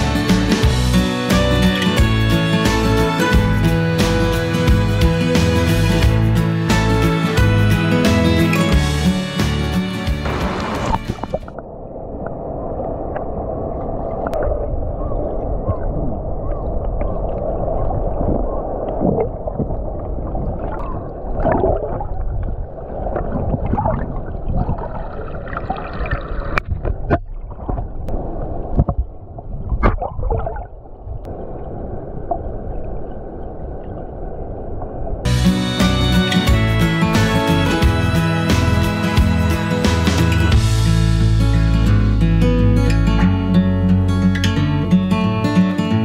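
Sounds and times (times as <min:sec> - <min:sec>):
muffled underwater rushing: 0:08.9 - 0:35.3.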